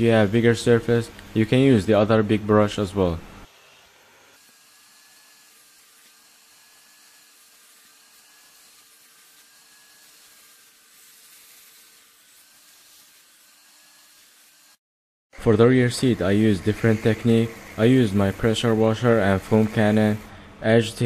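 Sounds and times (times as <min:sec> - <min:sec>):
vacuum cleaner running: 0:15.9 - 0:20.4.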